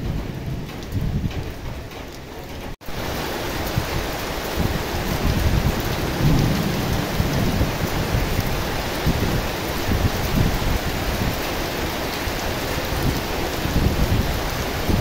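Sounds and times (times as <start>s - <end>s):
heavy rain pouring: 0.0s - 15.0s
low rumble: 5.8s - 9.4s.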